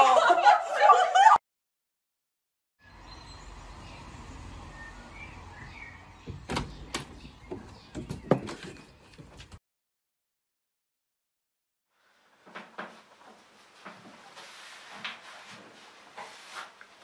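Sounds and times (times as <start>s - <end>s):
door clicks and knocks: 6.2s - 8.8s.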